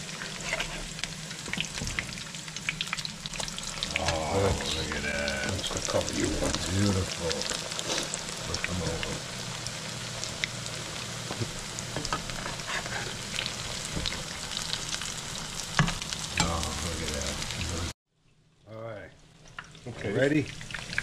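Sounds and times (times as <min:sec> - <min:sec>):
pancakes sizzling in hot oil: 0:00.0 - 0:17.9, 0:19.3 - 0:21.0
metal spatula scraping a pan: 0:00.2 - 0:01.0, 0:12.1 - 0:13.5.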